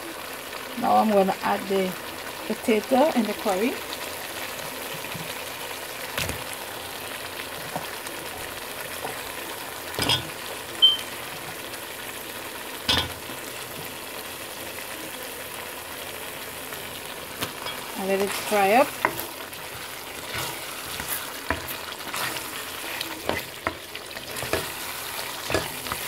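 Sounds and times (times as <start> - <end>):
paste sizzling in hot oil: 0.0 - 26.0.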